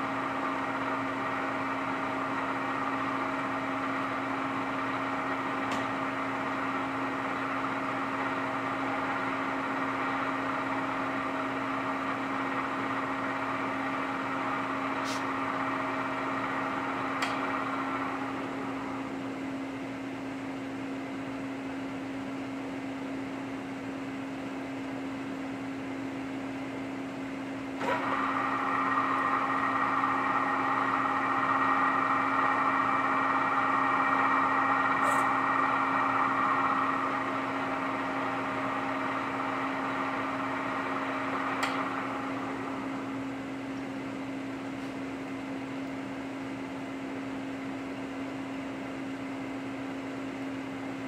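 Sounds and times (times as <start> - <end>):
end mill cutting metal: 0.0 - 19.5, 27.8 - 43.8
milling machine spindle humming: 0.0 - 21.6, 26.2 - 51.0.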